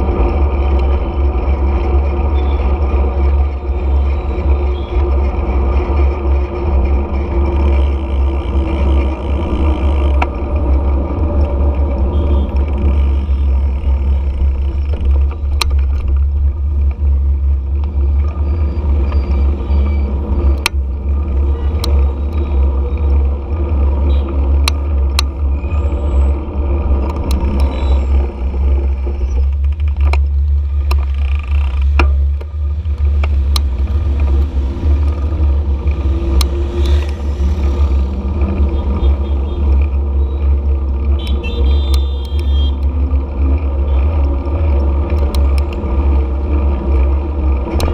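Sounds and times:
motorcycle engine running: 0.0 - 47.9
passing traffic: 0.0 - 47.9.

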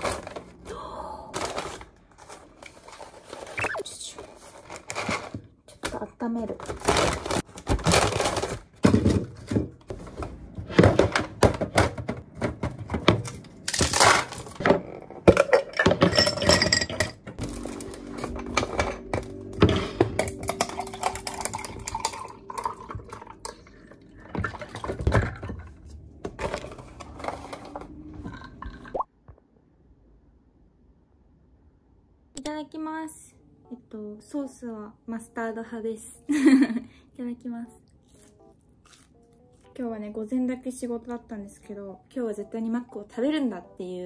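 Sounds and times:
paper bags rustling: 1.4 - 5.6, 6.5 - 10.2
takeaway boxes knocking and clattering: 6.8 - 13.3
tea poured over ice: 20.5 - 24.1.

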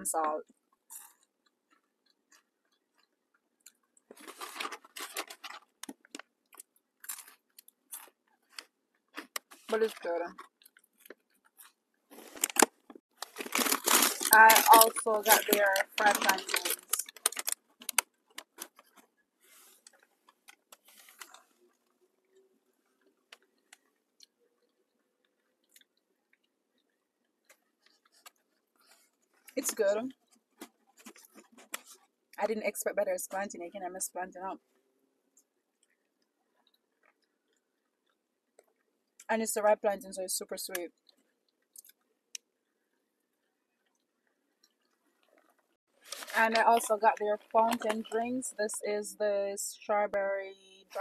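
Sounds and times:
crunching of fries being chewed: 0.7 - 22.3, 22.9 - 32.1, 40.8 - 42.8
paper rustling: 4.1 - 5.8, 11.6 - 21.6, 46.0 - 48.3.

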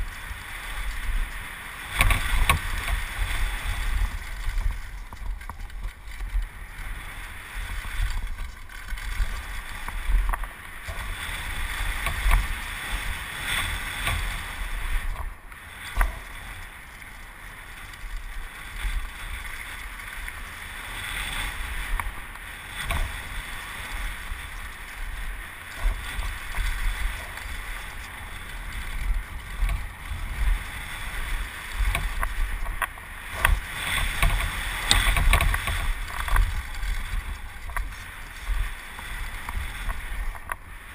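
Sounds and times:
bicycle tyre noise on dirt: 0.0 - 40.9
bike rattling over bumps: 0.0 - 40.9
wind rush on microphone: 0.0 - 40.9.

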